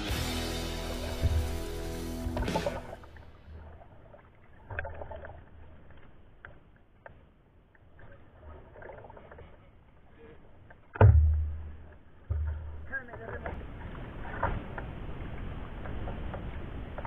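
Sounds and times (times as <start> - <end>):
kayak paddle splashing: 0.1 - 17.0
water drips: 0.6 - 17.0
loud sudden thump: 1.1 - 3.1.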